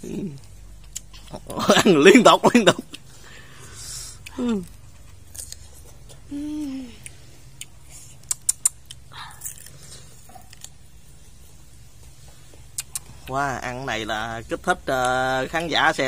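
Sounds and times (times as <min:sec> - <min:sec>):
child chewing crisp fruit: 0:00.0 - 0:15.7
short hummed vocal sound: 0:06.1 - 0:07.3
sharp crunching clicks: 0:07.6 - 0:09.7.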